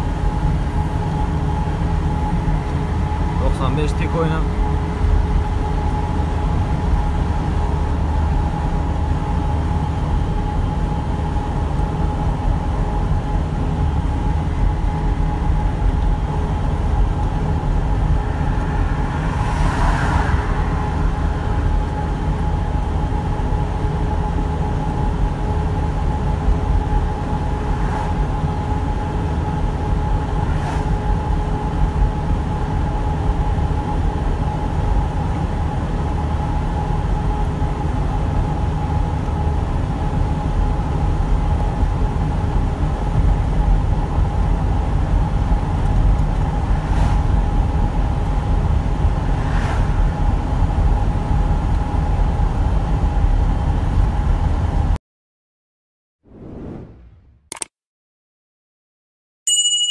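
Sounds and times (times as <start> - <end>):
engine and road drone: 0.0 - 55.0
brief rushing swell: 18.0 - 21.8, 49.2 - 50.4, 56.3 - 57.4.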